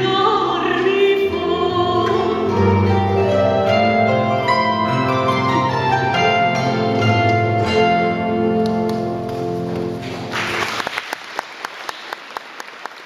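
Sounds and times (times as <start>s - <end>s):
audience applause: 8.6s - 13.0s.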